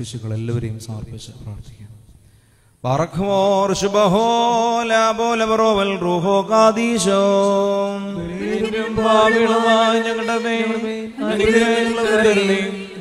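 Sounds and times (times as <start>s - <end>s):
man chanting a prayer: 2.8s - 13.0s.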